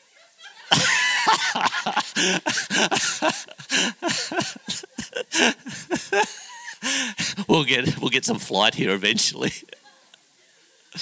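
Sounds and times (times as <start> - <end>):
man laughing hard: 0.6 - 7.6.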